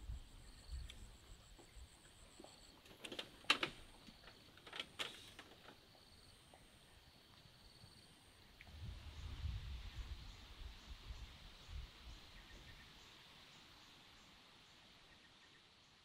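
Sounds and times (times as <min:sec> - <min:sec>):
sharp clicks and knocks: 0:02.8 - 0:05.8.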